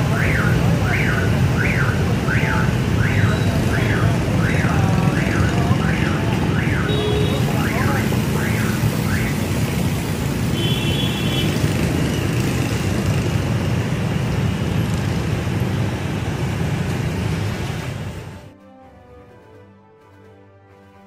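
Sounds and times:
motorbikes passing: 0:00.0 - 0:18.6
horn beep: 0:00.1 - 0:09.5.

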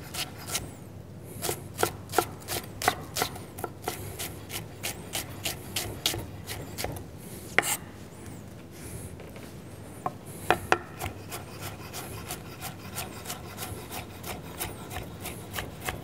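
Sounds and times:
knife chopping on wooden board: 0:01.4 - 0:07.0, 0:10.4 - 0:16.0.

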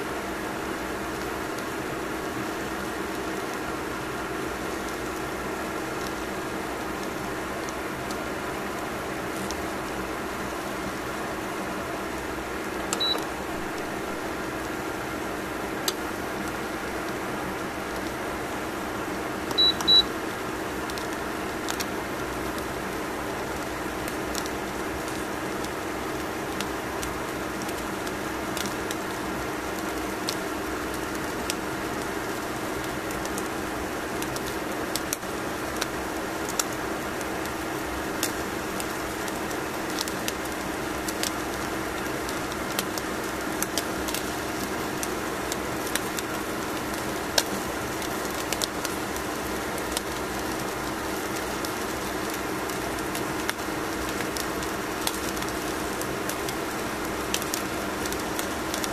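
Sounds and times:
salmon crackling on foil: 0:20.8 - 0:58.9.

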